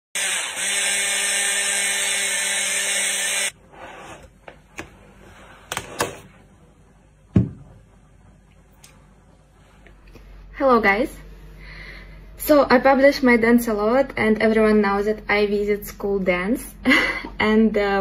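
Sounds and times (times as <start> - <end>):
electric hand blender motor hum: 0.1 - 3.6.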